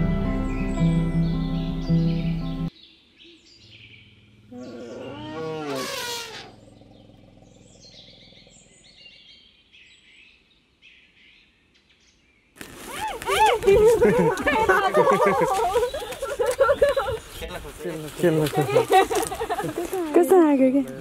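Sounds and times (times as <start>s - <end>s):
birds chirping: 0.0s - 21.0s
elephant trumpeting: 4.5s - 6.9s.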